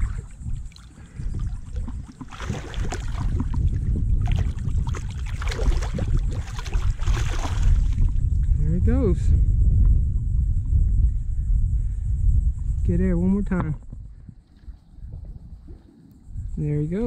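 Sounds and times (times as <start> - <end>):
water splashing and sloshing: 0.0 - 8.4
wind rumble on microphone: 0.0 - 17.0.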